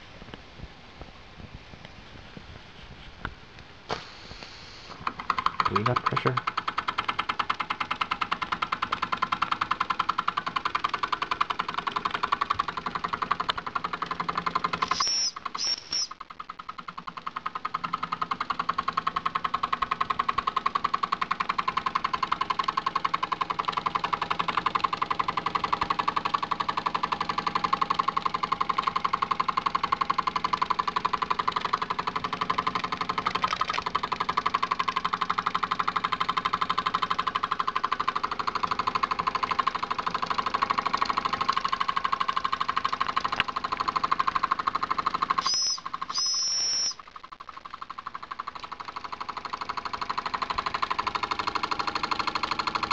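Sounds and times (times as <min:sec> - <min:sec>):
model steam engine chuffing: 0:04.0 - 0:16.1, 0:16.7 - 0:47.0, 0:47.6 - 0:52.9
short high squeaks: 0:14.8 - 0:16.2, 0:45.4 - 0:47.1.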